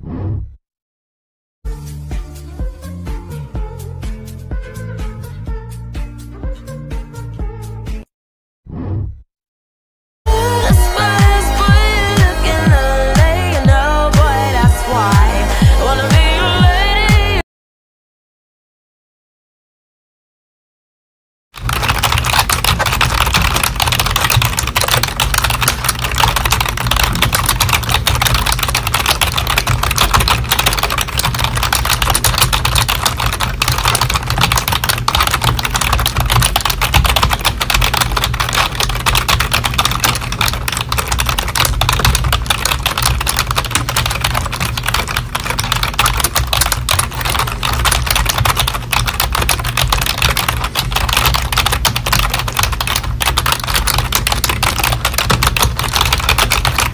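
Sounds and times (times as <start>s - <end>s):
fast keyboard typing: 10.4s - 17.4s, 21.6s - 56.9s.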